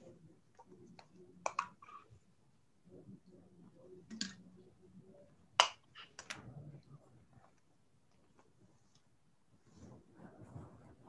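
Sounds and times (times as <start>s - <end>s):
faint room noise: 0.0s - 11.0s.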